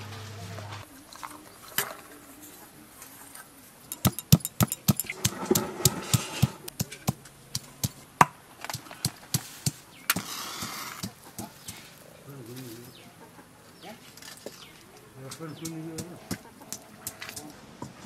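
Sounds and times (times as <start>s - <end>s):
stone pestle pounding on wooden board: 3.9s - 8.0s, 15.3s - 17.4s.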